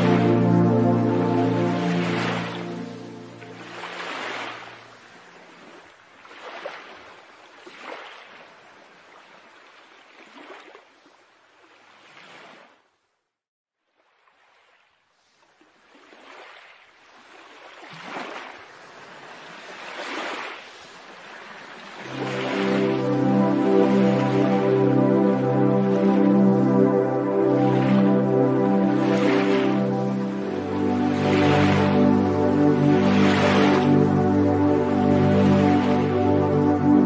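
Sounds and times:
waves breaking on rocky shore: 17.3 - 22.6.

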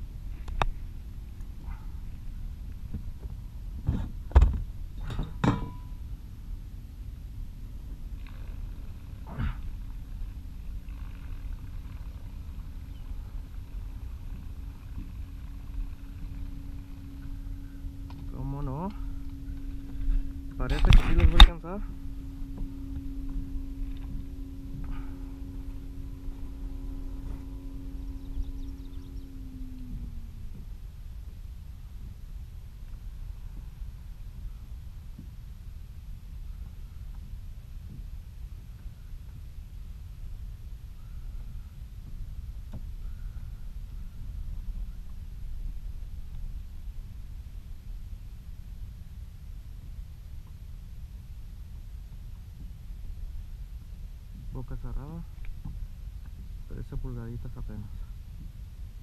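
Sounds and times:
low rumble: 0.0 - 59.0
steady low hum: 0.0 - 59.0.

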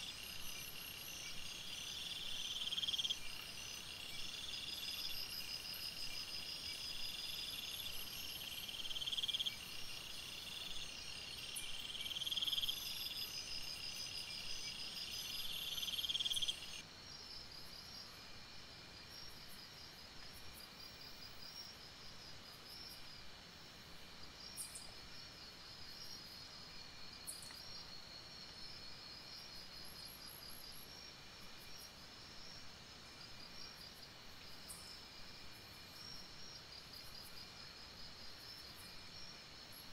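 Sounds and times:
loud pulsing insect call: 0.0 - 16.9
insects chirping and trilling: 0.0 - 23.2, 24.2 - 39.9.

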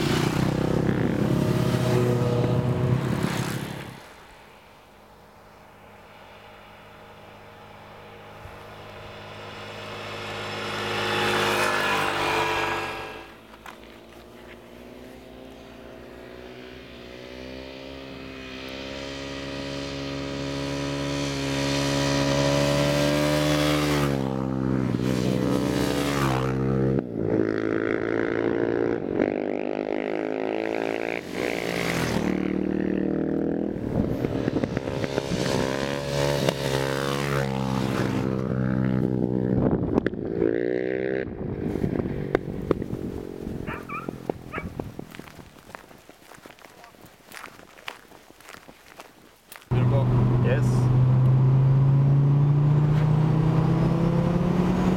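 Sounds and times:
engine roaring: 0.0 - 4.2, 5.1 - 45.2, 49.7 - 54.9
motorcycle engines revving: 0.0 - 4.2, 5.6 - 48.0, 49.6 - 54.9.

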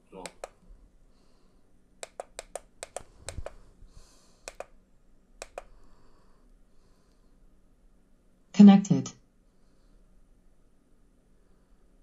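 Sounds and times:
control pad buttons clicking: 0.2 - 0.6, 2.0 - 3.6, 4.5 - 4.8, 5.4 - 5.7.

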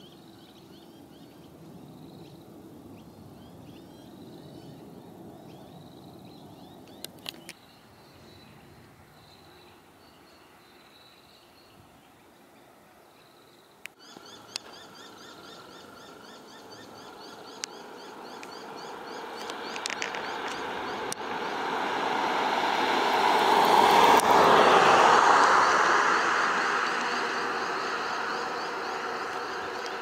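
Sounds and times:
bird chirping: 0.0 - 21.2
jet airliner engines at takeoff: 14.1 - 30.0.

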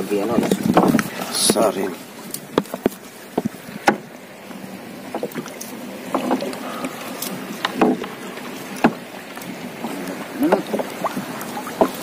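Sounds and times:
net rustling against boat: 0.0 - 12.0
water splashing: 0.0 - 12.0
sharp knocks on hull: 0.3 - 1.7, 2.5 - 4.1, 7.6 - 8.2, 8.8 - 9.0.

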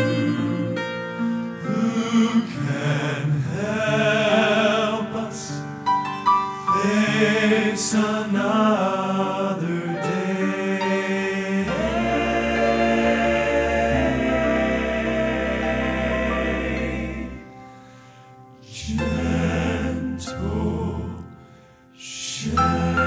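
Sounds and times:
male vocal quartet singing: 0.0 - 5.9, 6.6 - 18.0, 18.6 - 23.0.

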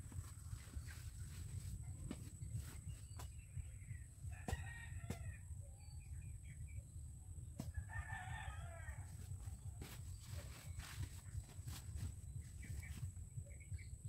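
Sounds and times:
rooster crowing: 7.8 - 9.2.

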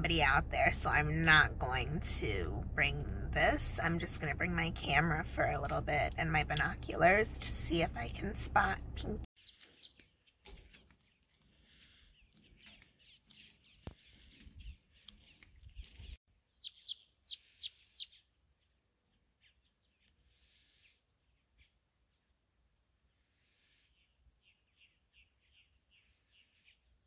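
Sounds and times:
wild birds chirping faintly: 9.3 - 27.0.

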